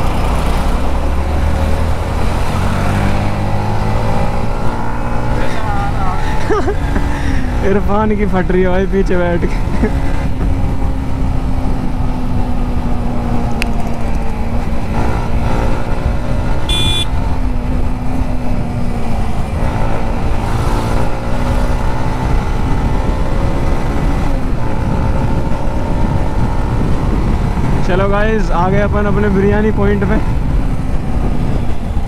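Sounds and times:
motorcycle engine: 0:00.0 - 0:32.0
wind and road noise: 0:00.0 - 0:32.0
high beep: 0:16.7 - 0:17.1.

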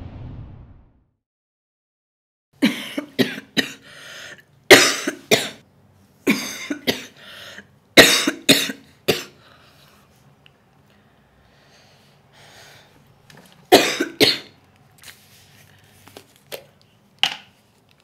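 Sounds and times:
woman coughing: 0:02.6 - 0:03.8, 0:04.7 - 0:05.6, 0:06.2 - 0:07.2, 0:08.0 - 0:09.4, 0:13.7 - 0:14.5.

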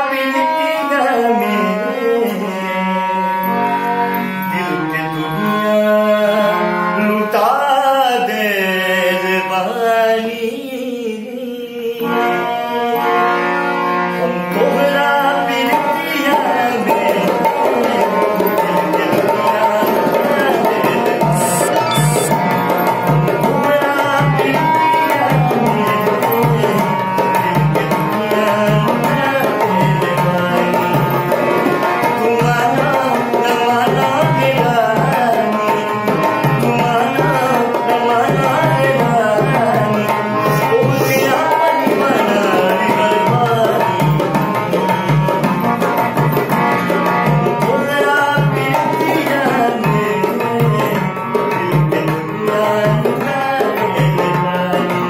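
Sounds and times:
man singing: 0:00.0 - 0:03.4, 0:04.4 - 0:13.2, 0:14.5 - 0:31.0, 0:31.9 - 0:45.9, 0:47.6 - 0:55.0
harmonium chords: 0:00.0 - 0:10.3, 0:11.8 - 0:55.0
dholak drum beat: 0:15.6 - 0:55.0.

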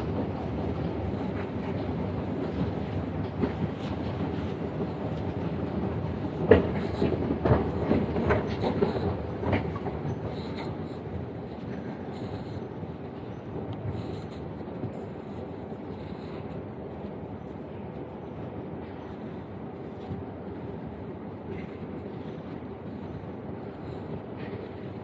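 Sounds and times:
train wheels clicking and knocking: 0:00.0 - 0:16.5
underground train rumble: 0:00.0 - 0:25.0.

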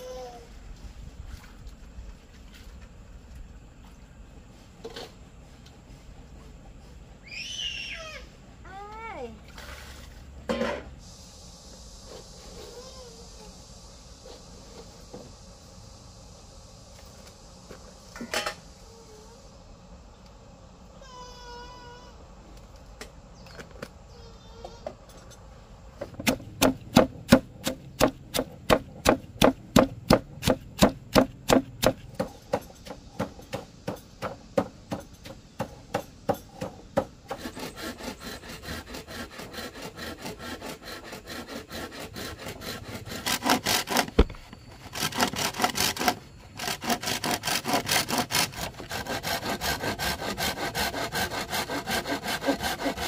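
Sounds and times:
saw cutting through wood: 0:37.0 - 0:53.0.

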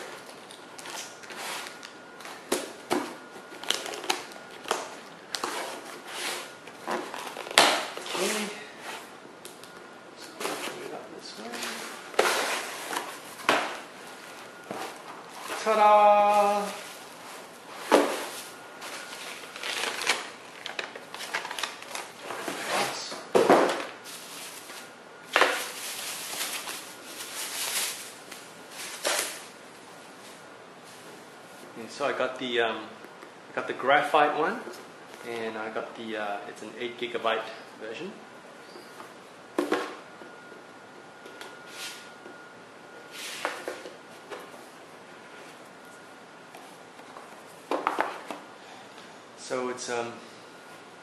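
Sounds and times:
plastic packing crinkling: 0:03.5 - 0:05.8, 0:11.4 - 0:22.5, 0:23.9 - 0:29.5.

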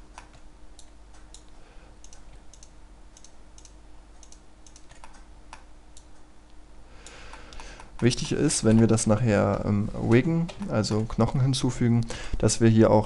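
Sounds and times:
faint steady hum: 0:00.0 - 0:13.0
computer mouse clicks: 0:00.1 - 0:08.9.

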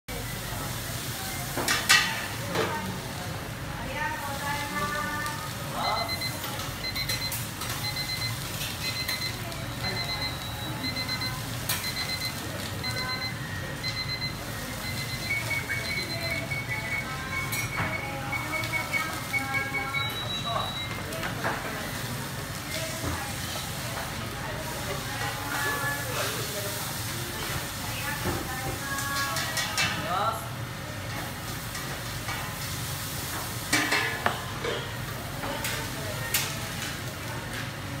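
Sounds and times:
rice sizzling in a wok: 0:00.1 - 0:16.8, 0:20.0 - 0:38.0
low hum of kitchen machinery: 0:00.1 - 0:38.0
higher-pitched beeping: 0:05.8 - 0:21.0
short high electronic beeps: 0:05.9 - 0:20.9.

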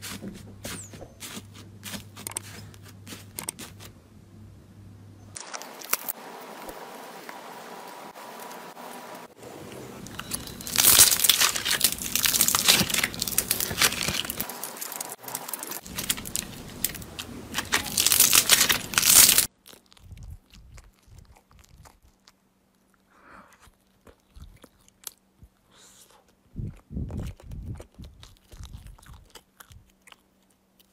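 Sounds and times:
plastic film crinkling: 0:05.4 - 0:06.8, 0:09.9 - 0:19.9
faint crackles and clicks: 0:10.0 - 0:23.0.

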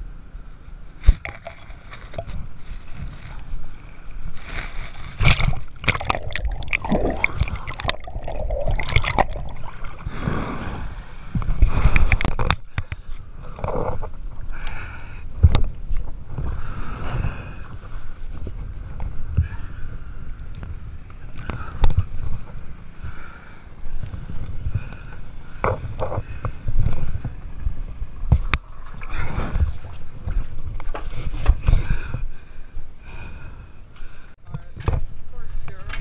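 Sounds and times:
water rumble: 0:00.0 - 0:33.7
wind buffeting microphone: 0:01.0 - 0:33.7
swimming strokes splashing: 0:05.1 - 0:12.2.

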